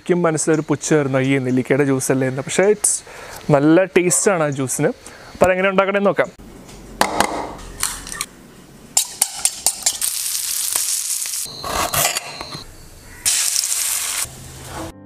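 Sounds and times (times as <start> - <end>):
food sizzling in frying pan: 9.0 - 11.5, 13.1 - 14.9.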